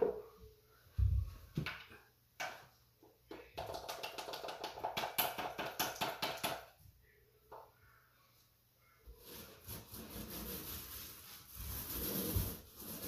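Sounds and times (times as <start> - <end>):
paint roller strokes in tray: 9.2 - 13.0.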